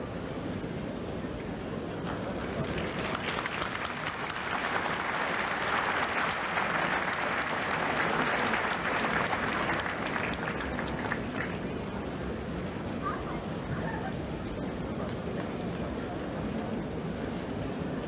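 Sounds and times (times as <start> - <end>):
large audience applauding: 2.3 - 11.6.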